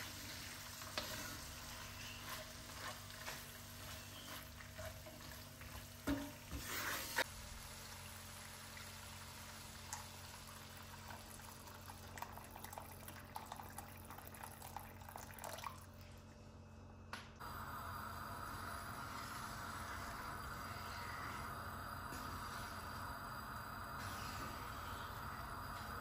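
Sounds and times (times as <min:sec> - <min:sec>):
meat sizzling in a pan: 0:00.0 - 0:11.9.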